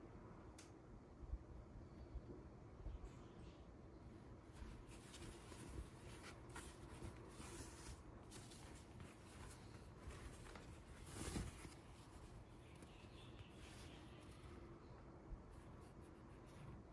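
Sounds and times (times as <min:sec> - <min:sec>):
fabric brushing: 0:04.5 - 0:14.6
cloth rustling: 0:04.5 - 0:14.8.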